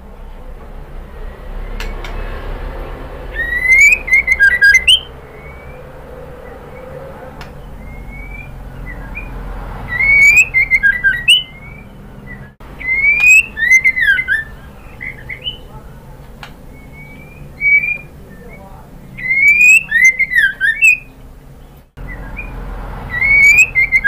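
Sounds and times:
bird whistling: 3.2s - 24.0s
soft single bird whistles: 3.4s - 5.8s, 9.9s - 15.6s, 19.2s - 21.0s.

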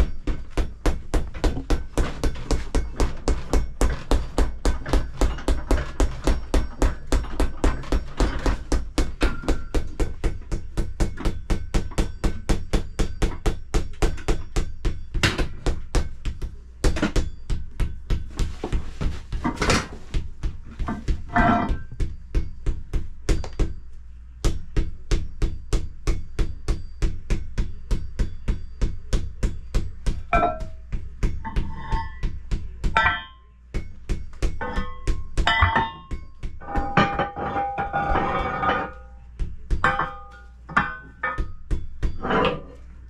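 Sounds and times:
hammer blows on anvil: 27.9s - 42.7s.

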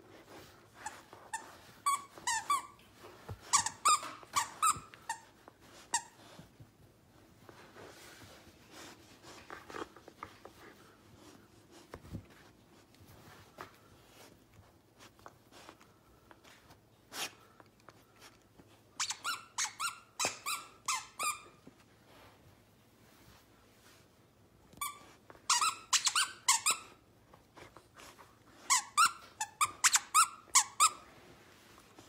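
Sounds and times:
toy squeaker squeaking: 24.9s - 26.9s.

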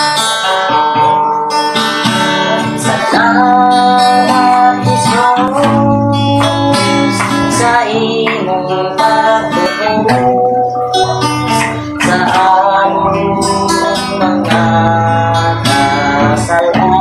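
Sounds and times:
acoustic guitar strumming chords: 0.0s - 17.0s
man singing worship song: 2.0s - 17.0s.

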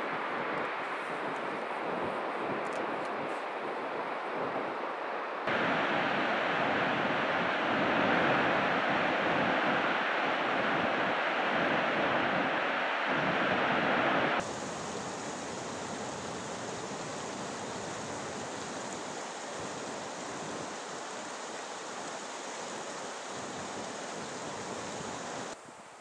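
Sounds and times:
deep water rush: 5.5s - 25.6s
water rushing over rocks: 5.5s - 25.6s.

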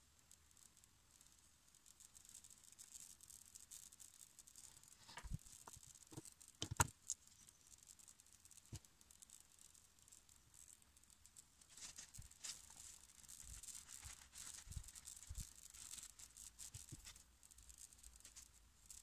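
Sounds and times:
fingers rubbing wax: 2.0s - 19.0s.

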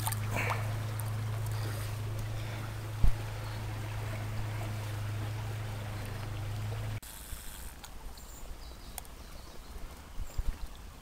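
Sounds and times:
steady low hum: 0.0s - 8.6s
river water running: 0.0s - 11.0s.

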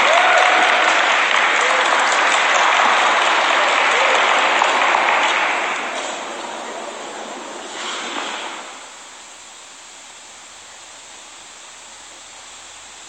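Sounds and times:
audience applause: 0.0s - 9.1s
air handling noise: 4.4s - 9.8s.

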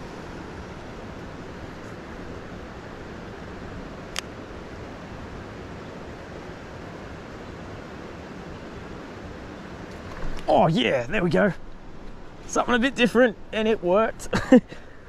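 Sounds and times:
rushing hiss of outdoor noise: 0.0s - 15.0s.

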